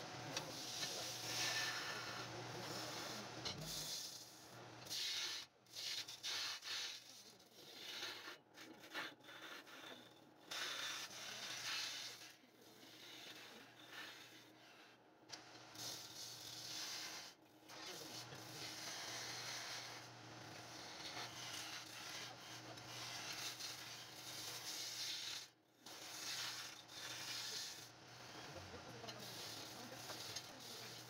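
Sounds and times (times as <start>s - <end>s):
sandpaper scratching spinning wood: 10.5s - 14.9s, 15.8s - 31.0s.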